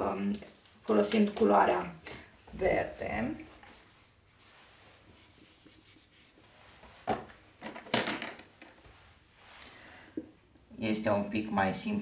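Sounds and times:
rubbing on a whiteboard: 3.8 - 6.8.

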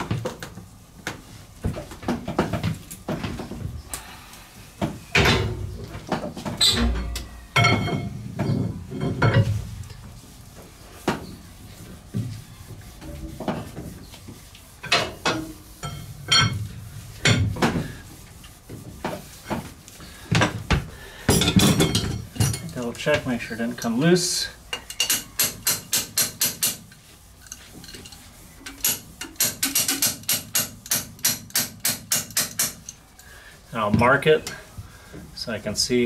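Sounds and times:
metallic clanks and knocks: 5.2 - 9.6, 14.8 - 17.8, 21.3 - 22.8, 27.8 - 32.8.

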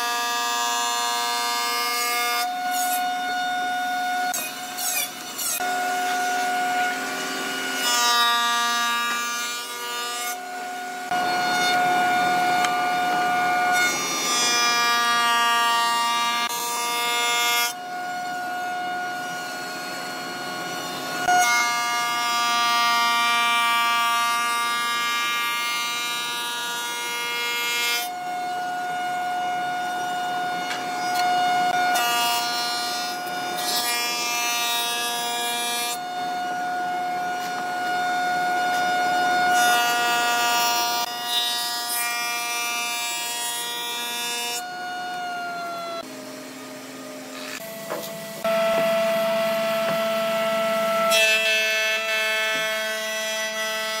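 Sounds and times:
jointer whining: 46.7 - 51.1.

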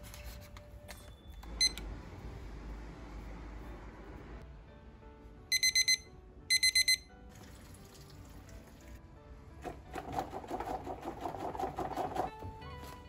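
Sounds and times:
kitchen timer beeping: 1.1 - 1.8, 5.5 - 7.1
water splashing into sink: 7.3 - 9.0.

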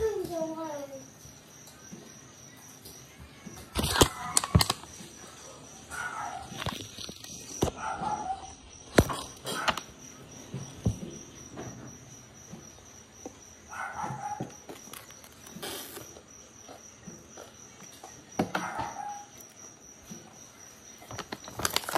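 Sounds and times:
cricket chirping: 0.0 - 21.9
sharp crunches and clicks: 2.8 - 10.0, 13.8 - 20.2, 20.9 - 21.9.

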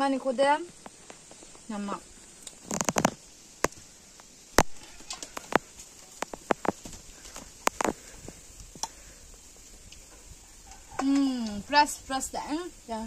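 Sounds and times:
food crackling being bitten: 2.4 - 9.0.

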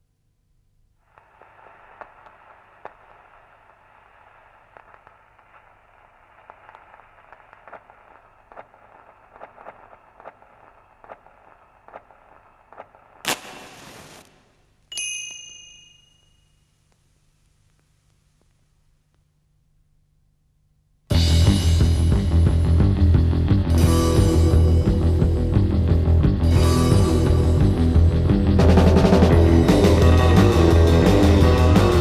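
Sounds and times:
crackling hiss: 1.0 - 14.8
metallic ding: 14.9 - 16.6.

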